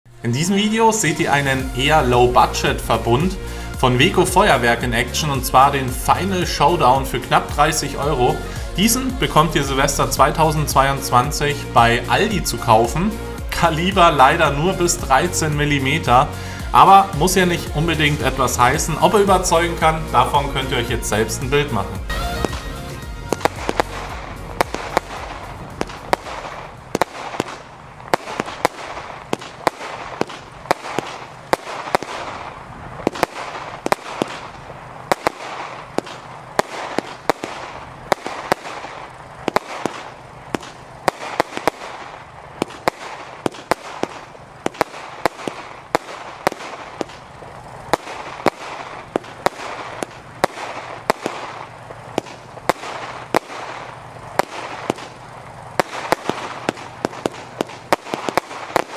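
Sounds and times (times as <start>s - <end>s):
firework bangs: 0.1s - 58.9s.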